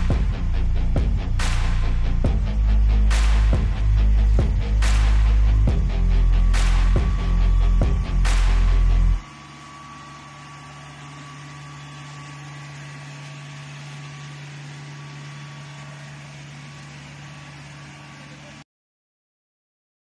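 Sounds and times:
loud bass-heavy music: 0.0 - 9.2
diesel engine humming with whine: 0.0 - 18.6.

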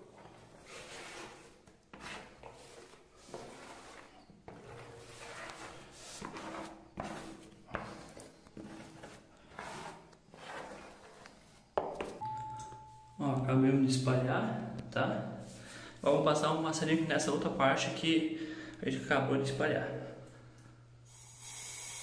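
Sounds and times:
spatula scraping wet coating: 0.0 - 11.7.

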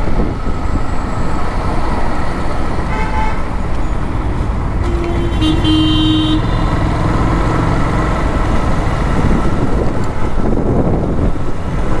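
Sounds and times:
wind buffeting microphone: 0.0 - 1.7, 6.6 - 12.0
motorcycle engine rumble: 2.4 - 12.0
horn blaring: 2.9 - 3.6, 4.8 - 8.4.

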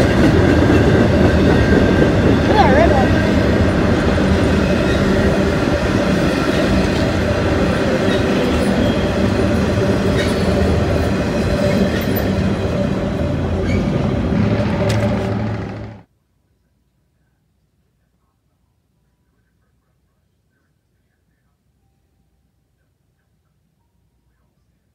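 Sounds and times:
train wheels rumbling on rail: 0.0 - 16.1
wheel clicks over rail joints: 14.4 - 16.0.

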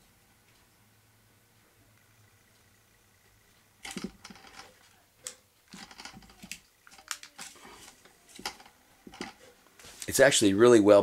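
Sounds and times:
metal disc clicking and knocking: 3.8 - 4.8, 5.7 - 7.5, 8.3 - 9.4.

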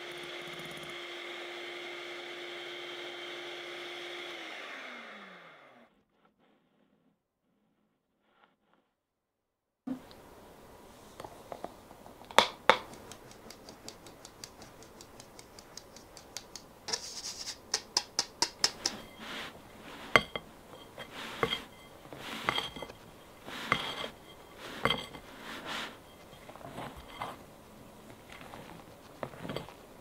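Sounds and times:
tapping on sieve: 17.6 - 19.2
spatula scraping glass bowl: 18.7 - 27.5.

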